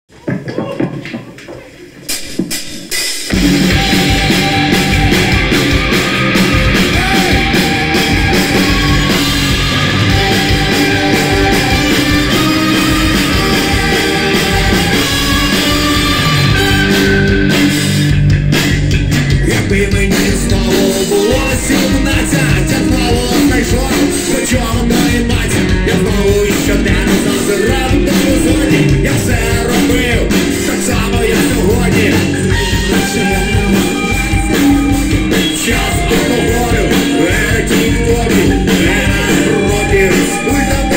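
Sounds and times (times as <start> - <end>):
drums: 0.1 - 40.9
brass section playing: 3.3 - 18.2, 31.0 - 40.9
electric guitar: 3.3 - 40.9
person singing: 3.7 - 17.2, 19.3 - 40.9.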